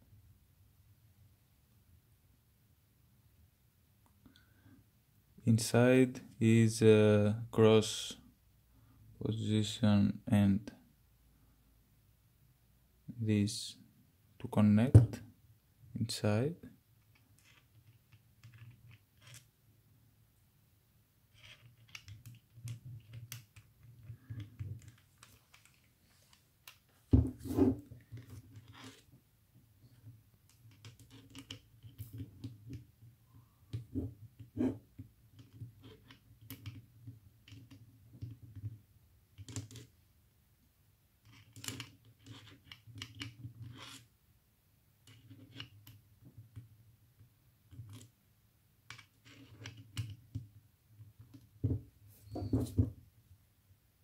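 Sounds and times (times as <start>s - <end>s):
hand scuffing on microphone: 27.2s - 27.9s, 52.1s - 53.0s.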